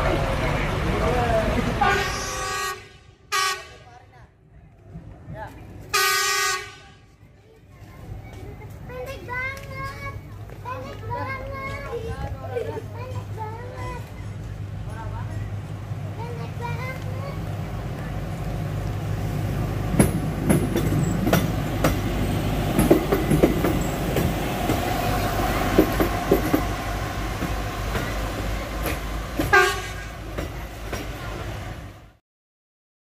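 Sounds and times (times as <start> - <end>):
rail car rumbling: 0.0 - 32.2
wheels clicking over rail joints: 7.4 - 31.4.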